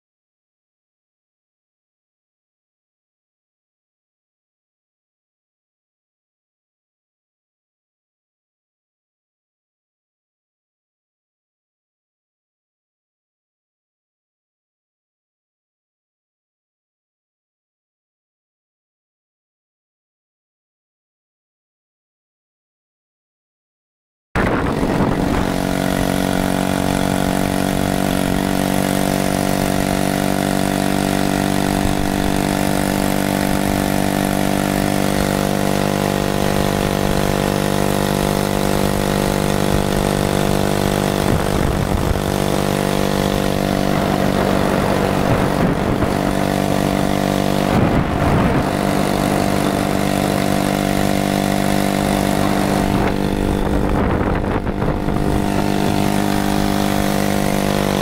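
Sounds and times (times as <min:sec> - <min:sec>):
road and wind noise: 0:24.4 - 0:58.0
small engine running steadily: 0:24.4 - 0:58.0.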